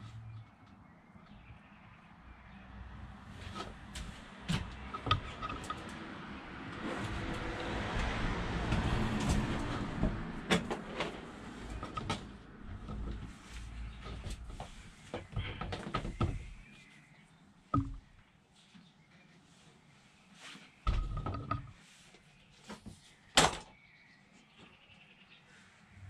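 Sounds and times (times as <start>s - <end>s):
rustling and clicks of hoses: 3.4s - 17.0s.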